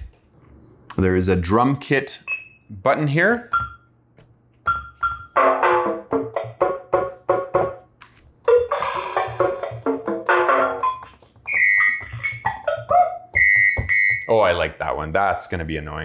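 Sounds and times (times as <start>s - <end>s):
keyboard percussion samples: 4.6s - 7.9s, 8.5s - 14.3s.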